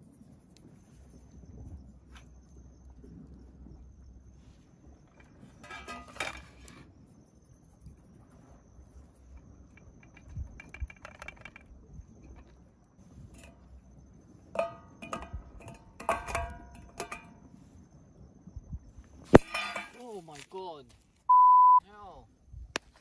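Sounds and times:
metal plates clanking: 5.1s - 6.8s, 14.4s - 17.4s, 19.3s - 20.2s.

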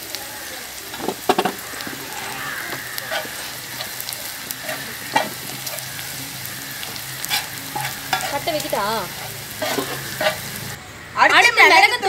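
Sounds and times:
food sizzling in hot oil: 0.0s - 10.8s
spatula scraping and knocking griddle: 0.9s - 6.1s, 6.8s - 10.8s.

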